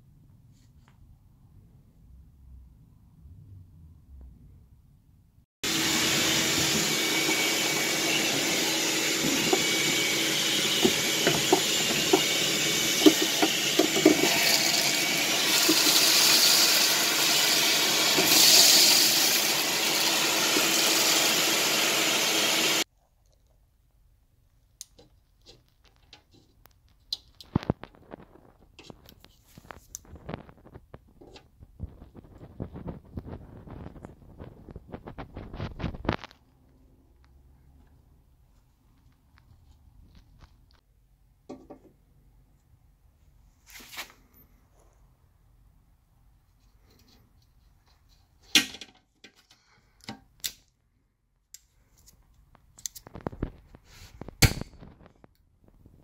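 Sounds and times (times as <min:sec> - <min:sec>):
vacuum cleaner running: 0:05.6 - 0:22.9.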